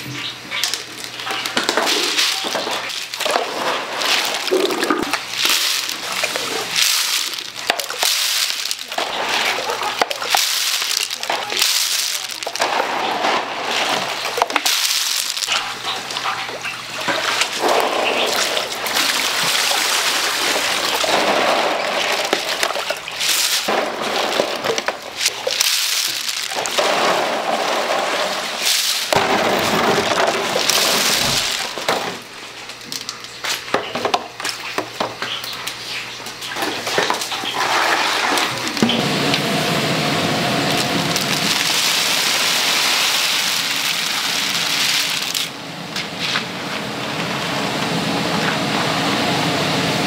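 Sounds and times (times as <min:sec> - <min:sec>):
shells clattering in water: 0:00.6 - 0:32.2, 0:41.1 - 0:45.5.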